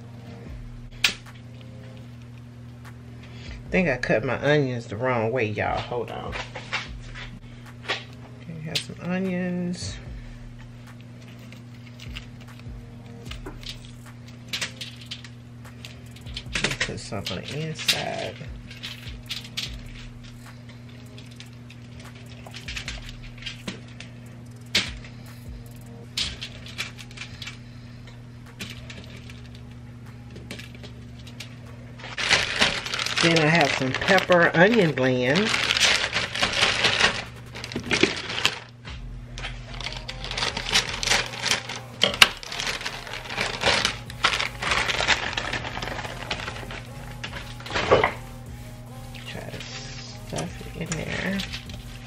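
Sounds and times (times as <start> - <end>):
steady low hum: 0.0 - 52.0
foil rustling and crinkling: 11.0 - 52.0.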